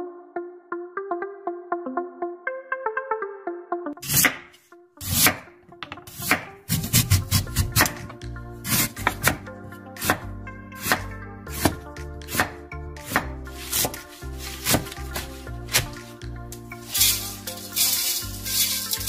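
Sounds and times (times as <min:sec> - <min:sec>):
background music: 0:00.0 - 0:19.0
knife chopping on cutting board: 0:04.0 - 0:08.1, 0:08.7 - 0:09.4, 0:10.0 - 0:10.2, 0:10.8 - 0:14.0, 0:14.6 - 0:16.0.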